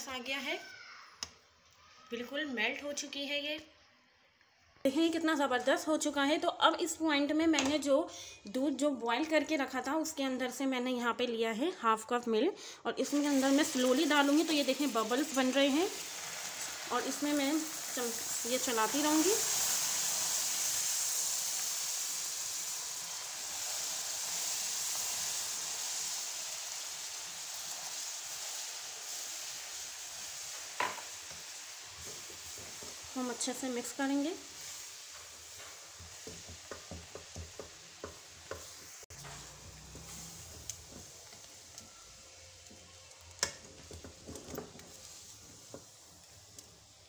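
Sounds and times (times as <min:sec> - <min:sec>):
sugar sizzling in a frying pan: 0:12.9 - 0:47.0.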